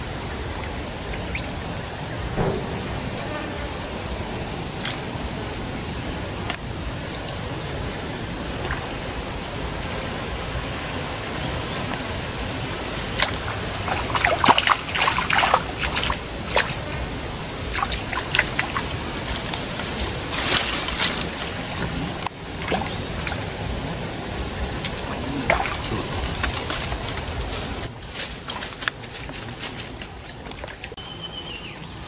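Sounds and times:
water splashing and sloshing: 0:07.3 - 0:31.0.

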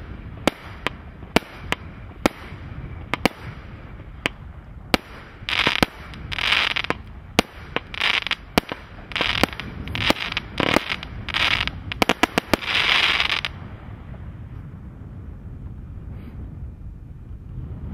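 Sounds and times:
firework bangs: 0:00.0 - 0:13.6
hissing crackle of firework stars: 0:00.0 - 0:14.2.

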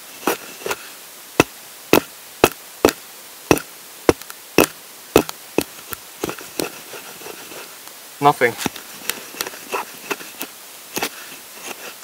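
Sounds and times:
axe blade clicking against log: 0:01.4 - 0:05.7.

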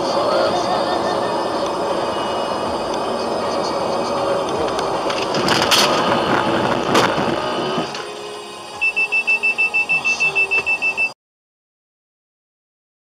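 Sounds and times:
road and engine noise: 0:00.0 - 0:11.1
rapid electronic warning beep: 0:00.8 - 0:04.4, 0:08.5 - 0:11.2.

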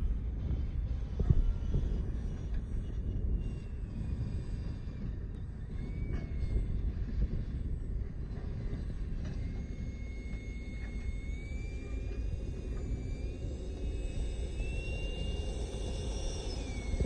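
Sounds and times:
high electric motor whine: 0:00.0 - 0:17.0.

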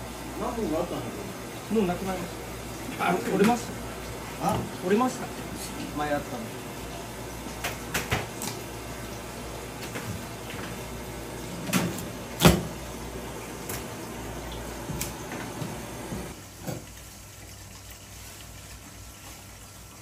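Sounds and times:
kitchen knocks and clatters: 0:07.6 - 0:08.4, 0:11.6 - 0:12.8.

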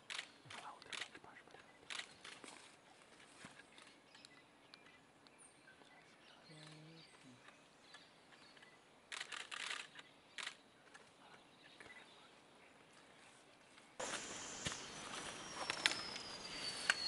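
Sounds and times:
faint distant bird calls: 0:00.0 - 0:17.0.

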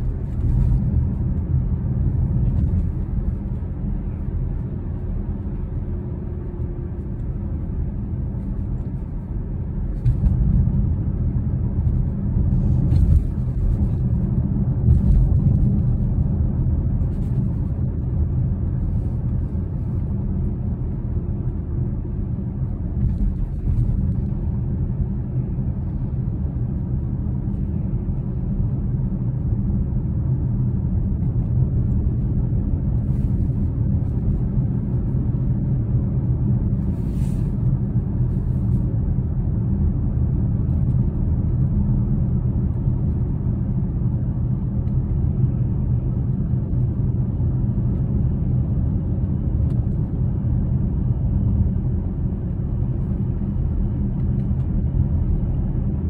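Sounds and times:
car engine and tyre noise: 0:00.0 - 0:56.0.

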